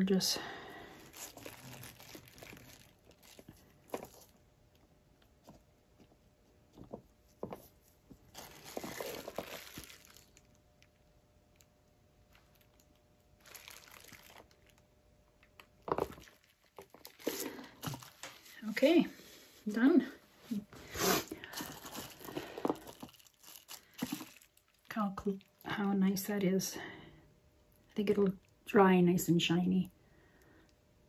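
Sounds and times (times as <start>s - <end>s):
plastic wrap crinkling: 0.8s - 4.4s, 6.8s - 11.0s, 12.3s - 14.8s, 15.5s - 18.9s, 21.2s - 25.9s.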